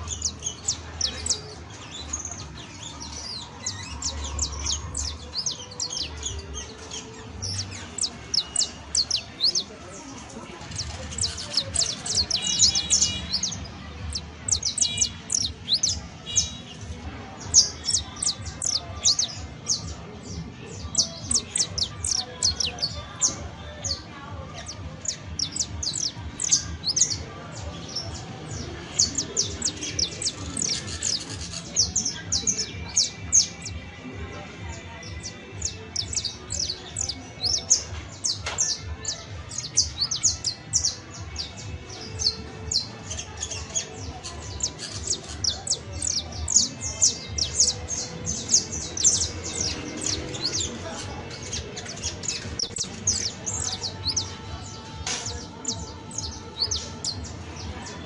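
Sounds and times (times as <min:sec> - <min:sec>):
finch singing high chirps: 0:00.0 - 0:58.0.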